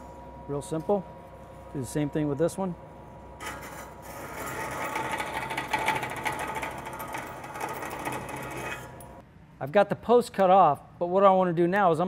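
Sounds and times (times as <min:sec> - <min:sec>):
bandsaw blade rasping through metal: 0:03.4 - 0:09.0
bandsaw motor hum: 0:03.4 - 0:09.2.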